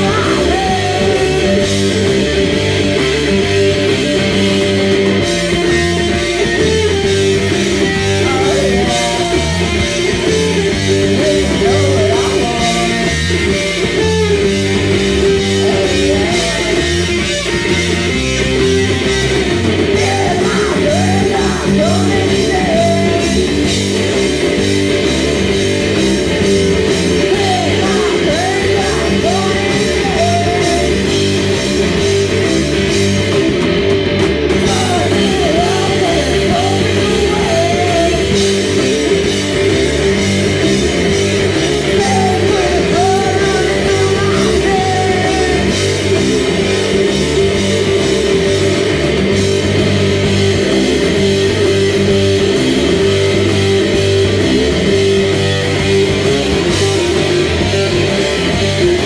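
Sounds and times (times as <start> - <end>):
person singing: 0.0 - 2.2, 7.8 - 13.4, 15.1 - 17.2, 19.9 - 23.6, 27.1 - 31.2, 34.6 - 38.6, 41.7 - 46.6
bass guitar: 0.0 - 59.0
distorted electric guitars: 0.0 - 59.0
drums: 0.0 - 59.0.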